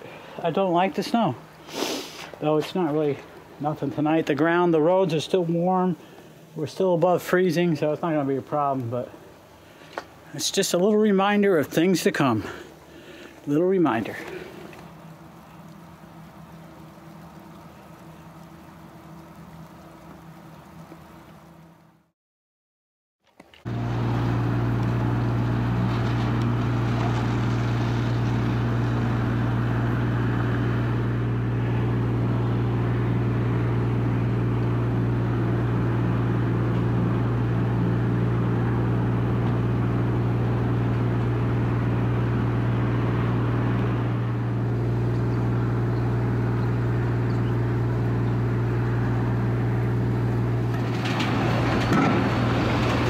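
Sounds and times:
diesel truck engine droning: 0:23.7 - 0:53.0.

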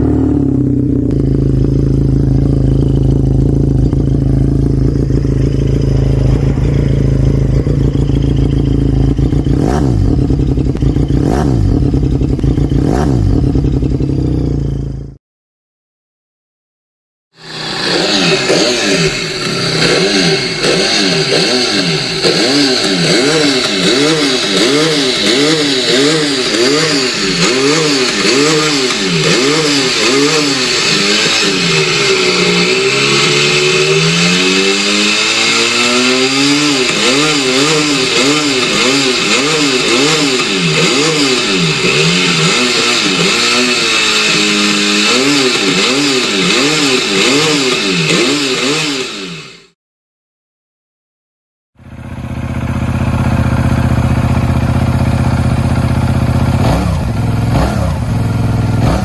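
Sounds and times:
motorcycle engine revving: 0:00.0 - 0:15.2, 0:17.3 - 0:49.8, 0:51.8 - 0:59.0.

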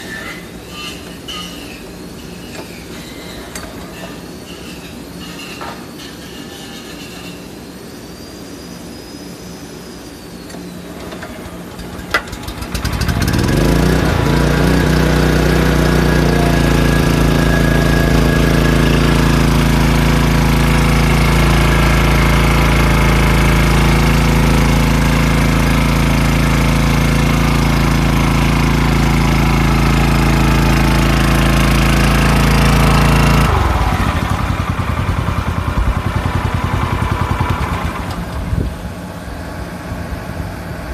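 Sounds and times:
water pump engine running: 0:11.4 - 0:40.9.

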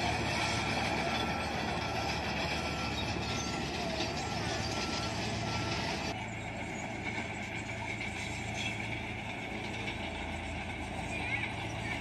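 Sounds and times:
reversing alarm beeping: 0:00.0 - 0:08.8
heavy machine diesel engines: 0:00.0 - 0:12.0.

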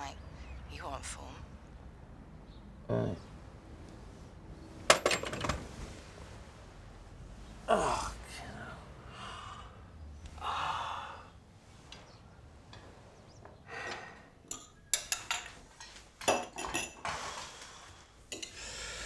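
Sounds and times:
dishes and cutlery clattering: 0:04.9 - 0:05.6, 0:14.5 - 0:17.2, 0:18.3 - 0:18.6
person breathing sound: 0:09.0 - 0:11.5, 0:13.6 - 0:14.4, 0:17.1 - 0:19.0.

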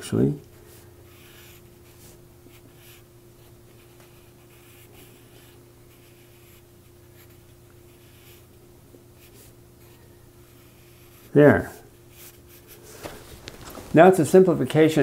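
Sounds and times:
low steady hum: 0:00.0 - 0:15.0
pencil scratching on paper: 0:01.1 - 0:08.5, 0:09.2 - 0:12.8.

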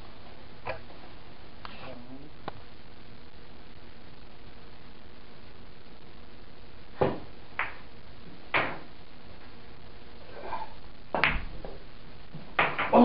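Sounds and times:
billiard balls clicking: 0:07.1 - 0:07.9, 0:11.1 - 0:13.0.

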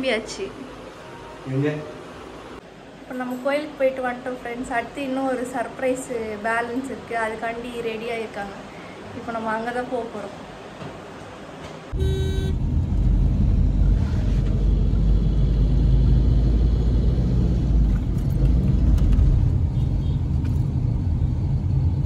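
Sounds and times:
car horn toot: 0:11.9 - 0:12.6
car driving rumble from inside: 0:12.0 - 0:22.0.

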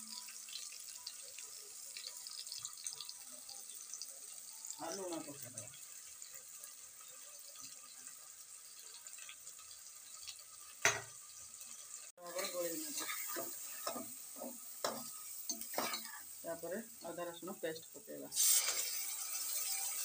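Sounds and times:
onions sizzling in oil: 0:00.0 - 0:20.0
spatula scraping a pot: 0:12.4 - 0:16.3.

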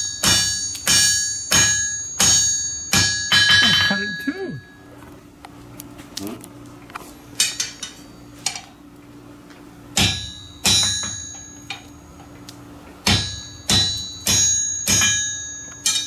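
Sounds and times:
hammer striking iron on anvil: 0:00.0 - 0:04.8, 0:09.9 - 0:12.0, 0:13.0 - 0:16.0.

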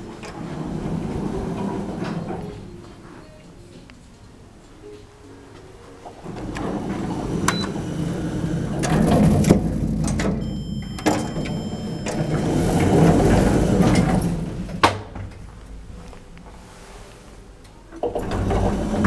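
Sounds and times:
footsteps: 0:12.8 - 0:18.0.

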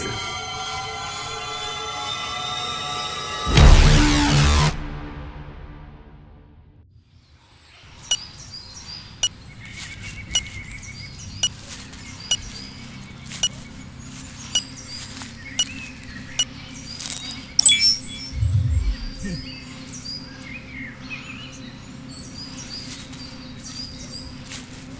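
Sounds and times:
birds chirping: 0:14.6 - 0:22.0
low steady hum: 0:17.0 - 0:19.6.

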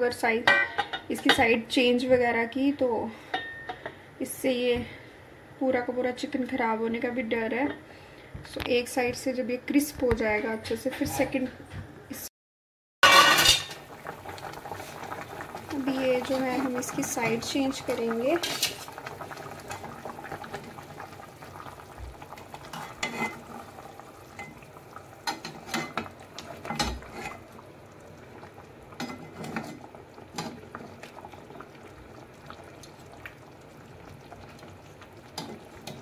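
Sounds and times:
chicken sizzling in gravy: 0:13.3 - 0:36.0
metal spoon scraping pan: 0:22.7 - 0:23.4, 0:26.7 - 0:27.4.

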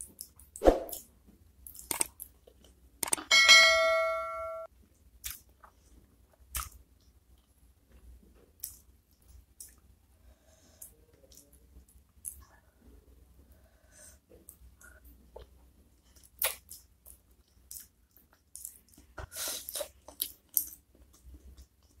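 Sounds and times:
multi-tone bell chime: 0:03.3 - 0:04.7.

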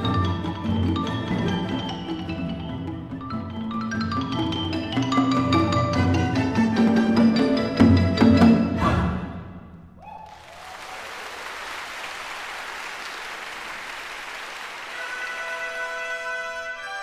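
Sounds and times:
audience applause: 0:10.1 - 0:16.2.

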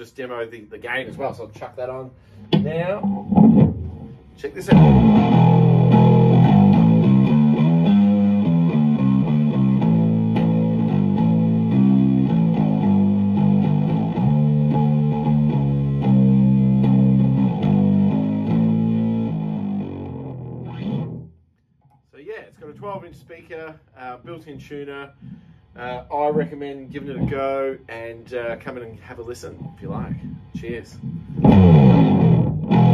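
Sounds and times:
overdriven electric bass riff: 0:02.5 - 0:21.4, 0:31.0 - 0:32.9.

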